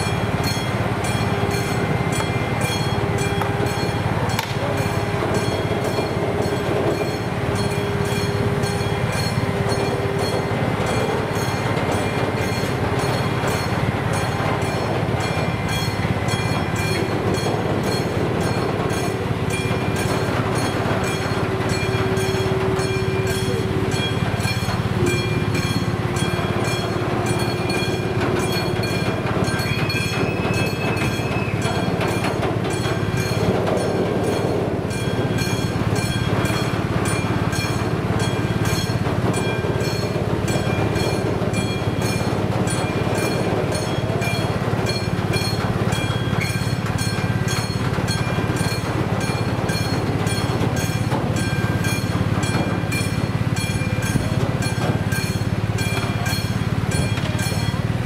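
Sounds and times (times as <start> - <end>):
crossing warning bell ringing: 0.0 - 58.0
train wheels rumbling on rails: 0.0 - 58.0
wheel squeals: 0.0 - 58.0.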